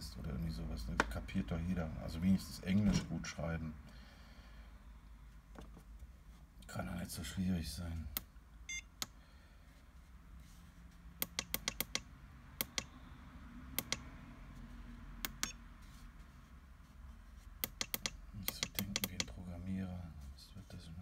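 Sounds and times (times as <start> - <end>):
low steady hum: 0.0 - 21.0
charger button clicks: 13.8 - 14.1.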